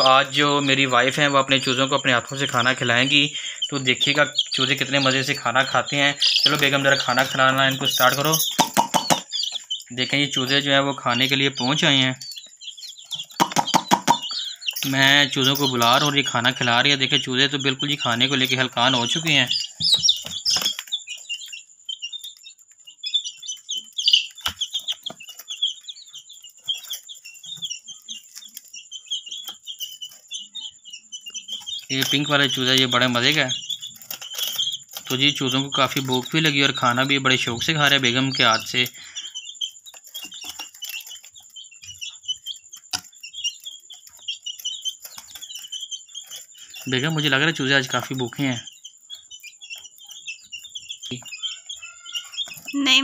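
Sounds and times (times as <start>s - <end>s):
baby chicks peeping: 0.0s - 53.0s.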